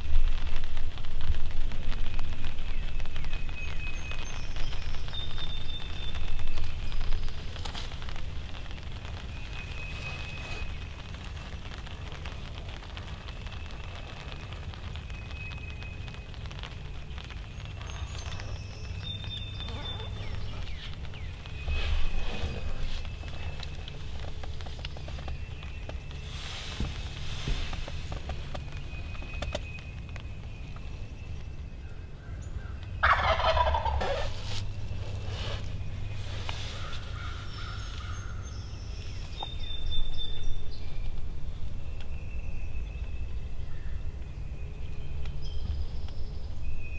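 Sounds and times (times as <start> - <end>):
crackling rustle: 0.0 - 46.9
low wind rumble: 0.0 - 46.9
turkey gobbling: 33.0 - 34.6.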